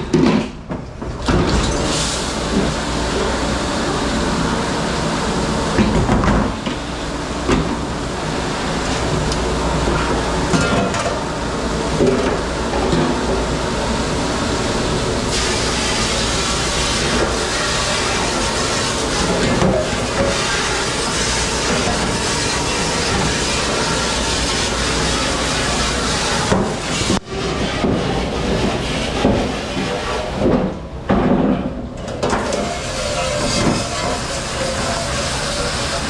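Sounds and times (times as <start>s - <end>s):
water and machinery hissing: 1.4s - 30.5s, 32.2s - 36.0s.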